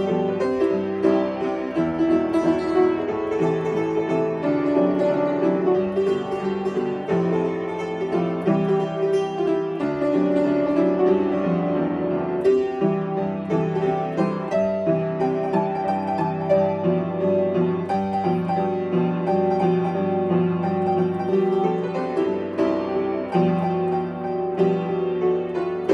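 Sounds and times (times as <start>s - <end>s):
solo piano playing: 0.0s - 25.9s.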